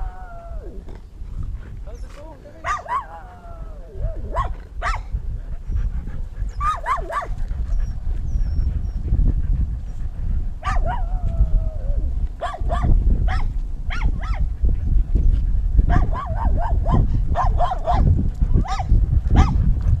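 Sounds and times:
low wind rumble and jostling: 0.0s - 20.0s
dogs yipping and whining: 1.9s - 9.1s, 9.8s - 14.5s, 15.9s - 19.6s.

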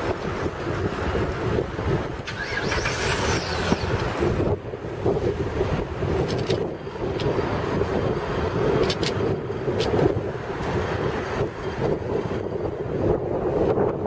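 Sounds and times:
road rumble: 0.0s - 14.0s
wind buffeting microphone: 0.0s - 14.0s
short rattles or clicks: 6.2s - 6.6s, 8.8s - 9.2s.

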